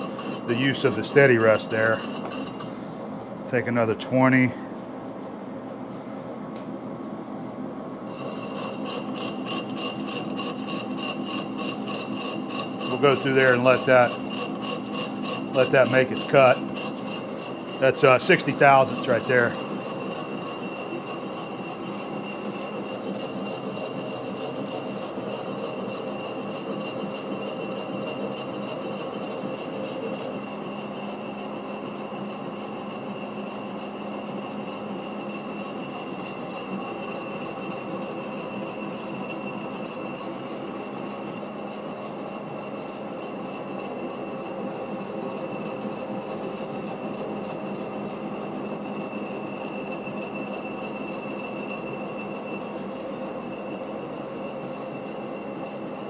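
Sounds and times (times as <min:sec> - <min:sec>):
thin high whine: 0:00.0 - 0:04.6, 0:08.1 - 0:56.0
lathe mechanical drone: 0:00.0 - 0:05.2, 0:05.8 - 0:56.0.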